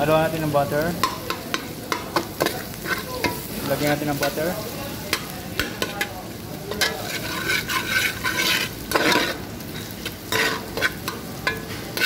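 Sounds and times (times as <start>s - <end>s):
aromatics sizzling in butter: 0.0s - 12.0s
metal spatula scraping pot: 2.4s - 4.4s, 6.7s - 12.0s.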